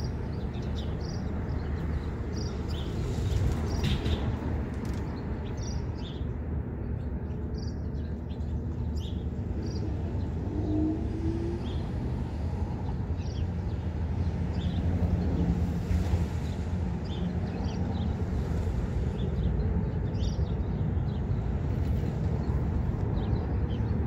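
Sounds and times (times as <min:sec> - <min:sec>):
distant city traffic rumble: 0:00.0 - 0:24.0.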